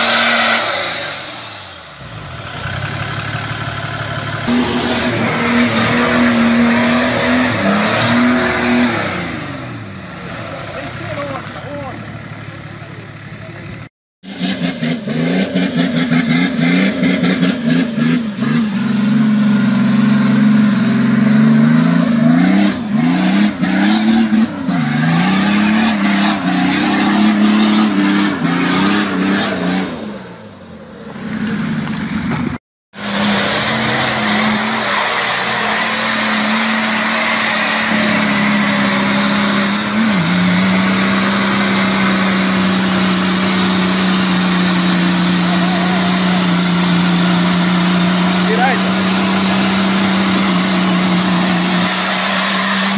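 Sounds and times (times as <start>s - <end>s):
engine revving hard: 0.0s - 2.0s, 4.4s - 10.4s, 14.2s - 31.8s, 32.9s - 52.9s
tyres churning mud: 4.5s - 9.4s, 33.0s - 52.9s.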